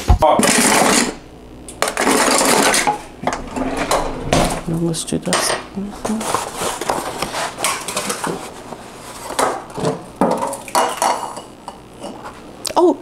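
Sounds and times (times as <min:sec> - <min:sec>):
eggs knocking and cracking: 0:09.3 - 0:12.2.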